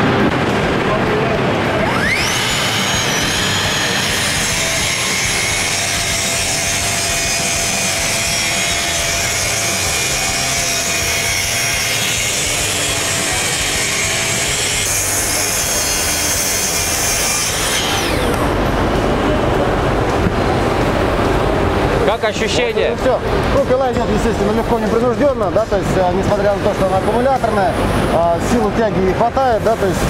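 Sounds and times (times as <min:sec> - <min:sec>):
track saw cutting plywood: 0:01.7 - 0:18.6
saw blade spinning down: 0:01.8 - 0:18.5.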